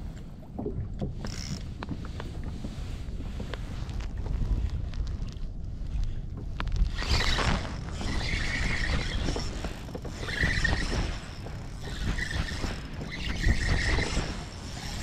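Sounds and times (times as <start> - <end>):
fishing reel whirring: 1.2 - 1.6, 6.9 - 15.0.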